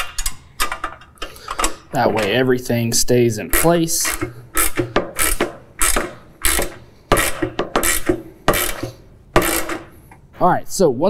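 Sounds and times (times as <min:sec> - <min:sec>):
ratchet wrench clicking: 0:03.6 - 0:09.9.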